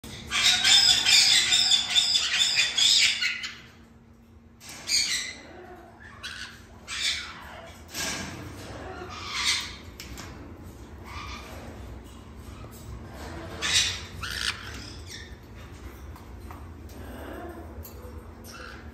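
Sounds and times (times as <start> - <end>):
parrot squawk: 0.1 - 3.7, 13.5 - 15.3
parrots screeching: 0.1 - 3.8, 4.7 - 7.9, 8.6 - 9.9, 11.0 - 11.8, 12.5 - 15.4, 18.4 - 18.9.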